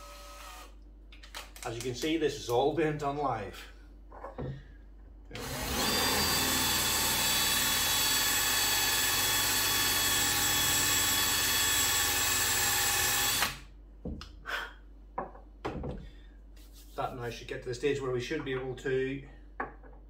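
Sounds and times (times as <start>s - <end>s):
cordless drill whining: 0.0s - 0.7s, 5.4s - 13.6s.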